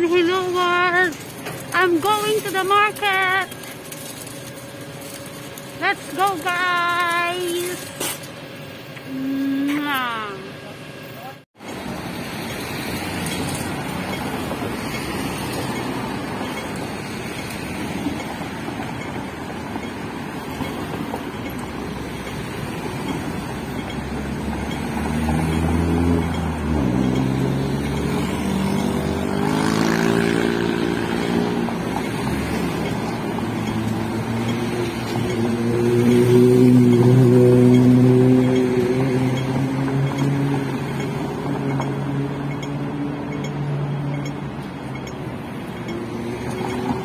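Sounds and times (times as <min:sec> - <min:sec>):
passing cars hum: 0:00.0 - 0:47.0
heavy engine running close by: 0:21.4 - 0:45.8.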